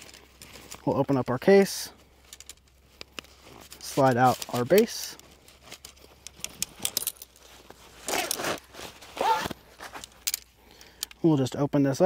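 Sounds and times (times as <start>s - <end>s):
fabric case rustling: 2.2s - 10.6s.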